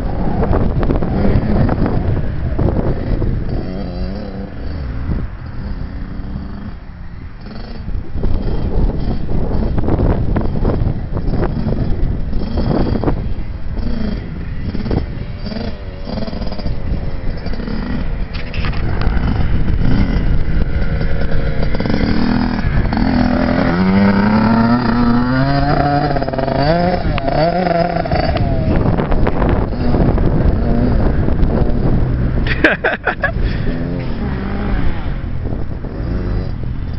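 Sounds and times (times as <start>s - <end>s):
two-stroke dirt bike engine revving: 0.0s - 36.9s.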